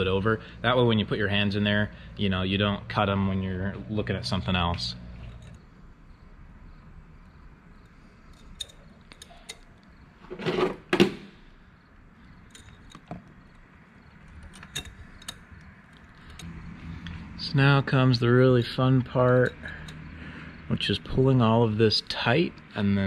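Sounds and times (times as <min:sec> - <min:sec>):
wire clicking and scraping: 0:05.2 - 0:05.7, 0:07.8 - 0:10.7, 0:12.0 - 0:17.3, 0:19.0 - 0:20.2.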